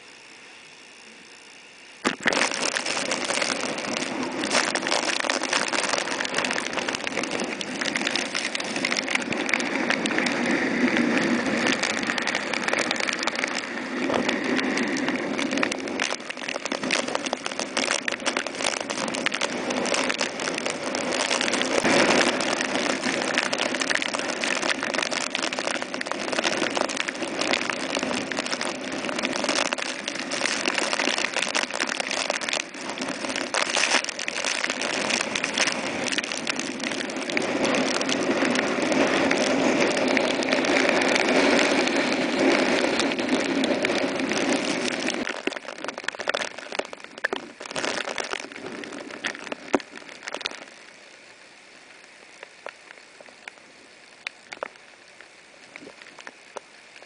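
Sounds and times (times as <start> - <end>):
driving rain: 0.0 - 57.0
raindrops ticking: 2.0 - 57.0
hurricane-force wind: 2.1 - 50.9.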